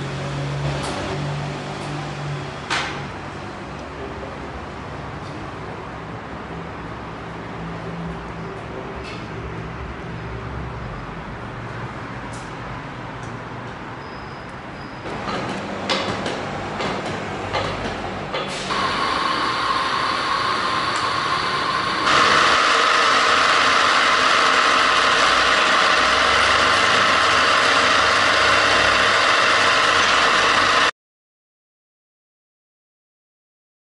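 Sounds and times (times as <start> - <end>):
drill spindle drive running: 18.6 - 30.9.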